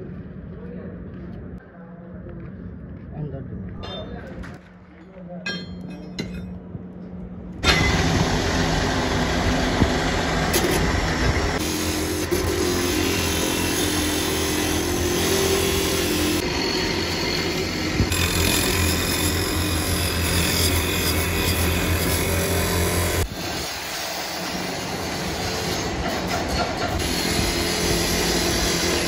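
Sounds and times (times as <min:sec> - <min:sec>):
abrasive disc grinding steel: 0:07.6 - 0:29.0.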